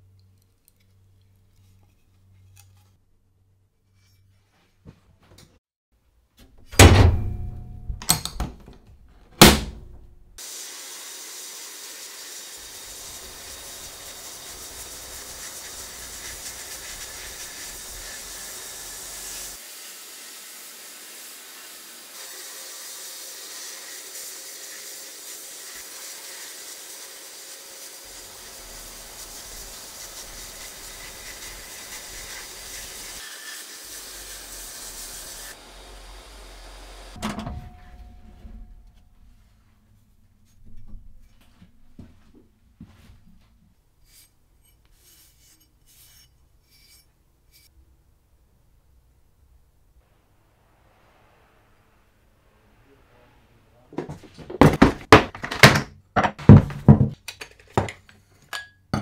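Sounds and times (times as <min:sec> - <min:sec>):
sandblasting gun hissing: 0:10.4 - 0:37.2
loud knocks: 0:54.0 - 0:57.2.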